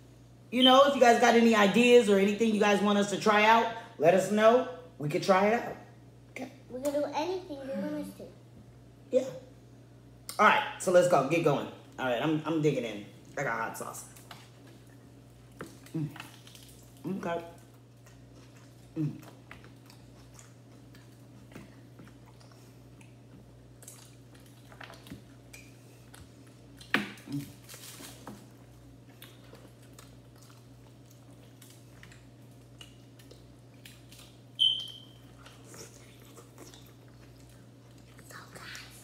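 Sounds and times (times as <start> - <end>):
low steady hum: 0.0 - 39.0
people chewing: 14.1 - 39.0
high squeak: 34.6 - 35.2.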